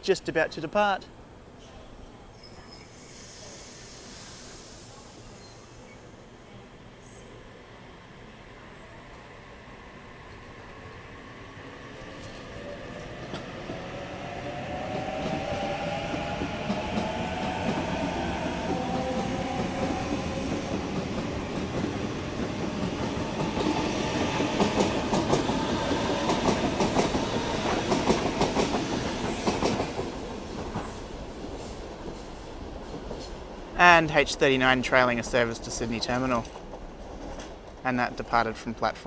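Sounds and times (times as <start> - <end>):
train wheels clacking on track: 14.8 - 33.4.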